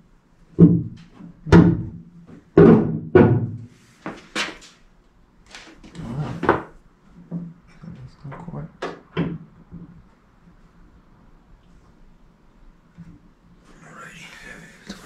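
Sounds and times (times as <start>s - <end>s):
hollow sheet-metal thunks: 0.6s - 3.7s.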